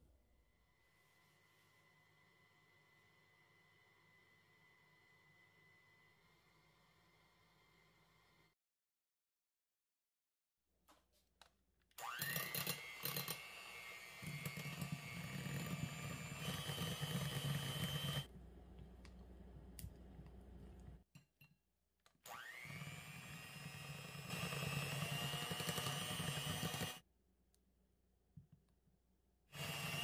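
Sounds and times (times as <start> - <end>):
electric hand mixer whining: 12.0 - 18.3, 22.3 - 27.0, 29.5 - 30.0.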